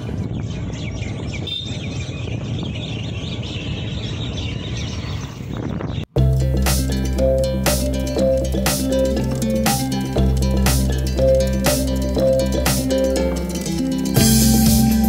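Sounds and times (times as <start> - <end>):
birds chirping: 0.0 - 15.0
music with plucked guitar: 6.2 - 15.0
road traffic noise: 6.2 - 15.0.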